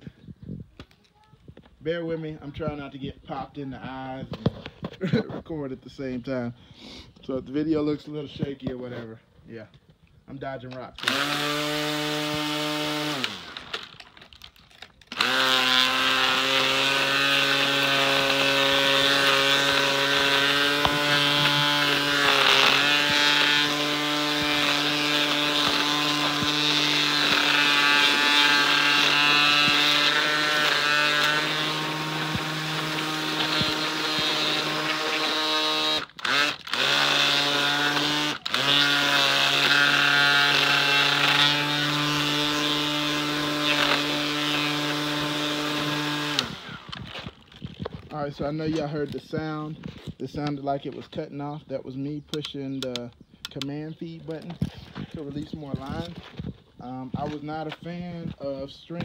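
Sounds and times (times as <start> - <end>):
string trimmer motor whining: 10.8 - 50.7, 52.2 - 59.0.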